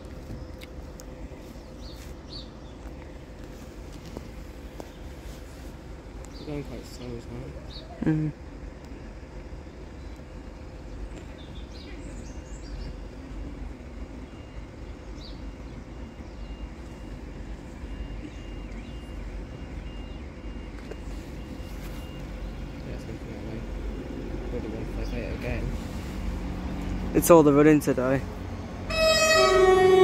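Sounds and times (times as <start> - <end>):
birds chirping: 0.0 - 30.0
distant traffic: 0.0 - 30.0
wind: 0.0 - 30.0
crossing alarm beeping: 12.9 - 25.5, 27.2 - 30.0.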